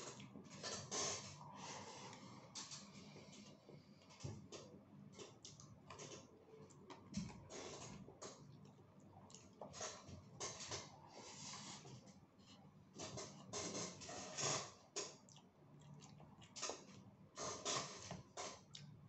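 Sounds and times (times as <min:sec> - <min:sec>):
chewing and lip-smacking: 0:07.9 - 0:09.7, 0:14.9 - 0:19.0.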